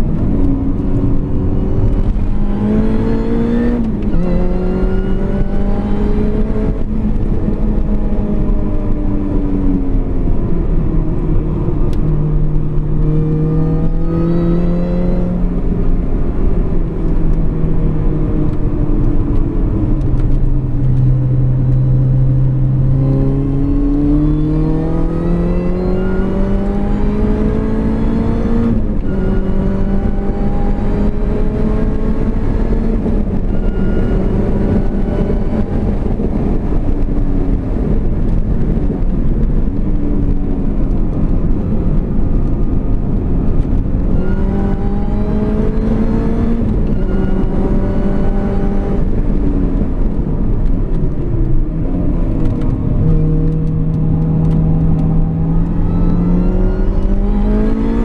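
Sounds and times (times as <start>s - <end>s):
car engine accelerating hard: 0.0s - 58.0s.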